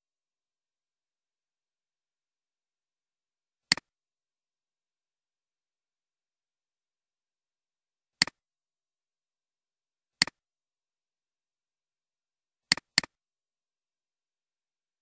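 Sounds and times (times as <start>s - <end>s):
computer mouse clicking: 12.7s - 13.2s.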